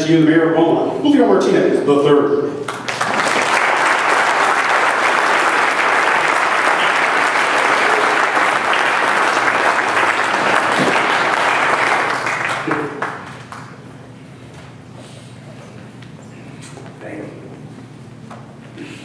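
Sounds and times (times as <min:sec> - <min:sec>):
audience applauding: 0:02.6 - 0:13.8.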